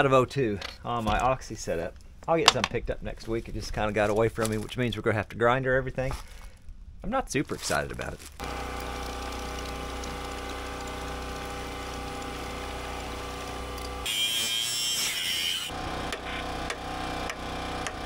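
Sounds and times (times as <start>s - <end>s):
angle grinder grinding steel: 8.4s - 16.8s.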